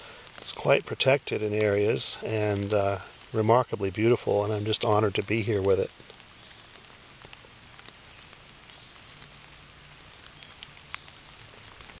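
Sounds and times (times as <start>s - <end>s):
faint steady hiss: 0.0s - 12.0s
rain dripping on leaves: 0.0s - 12.0s.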